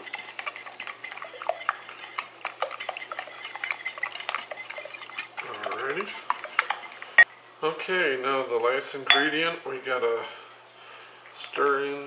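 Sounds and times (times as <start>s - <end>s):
whisk clinking against bowl: 0.0s - 7.2s, 9.1s - 9.4s.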